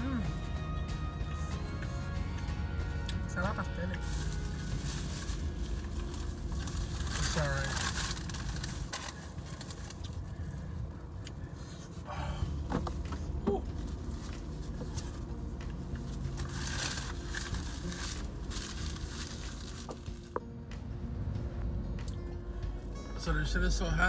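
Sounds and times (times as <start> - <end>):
car air conditioning hum: 0.0 - 24.0
paper food wrapper rustling: 3.9 - 10.3, 13.7 - 20.4.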